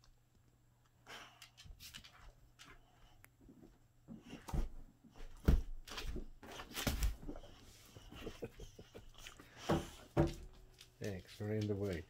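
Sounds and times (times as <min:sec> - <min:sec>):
dog paws thumping on wood: 0:03.5 - 0:08.5, 0:09.4 - 0:12.0.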